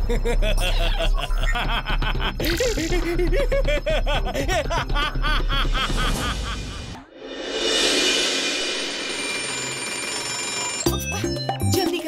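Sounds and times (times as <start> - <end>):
background music: 0.0 - 7.0, 7.8 - 12.0
man cackling laugh: 0.0 - 7.0.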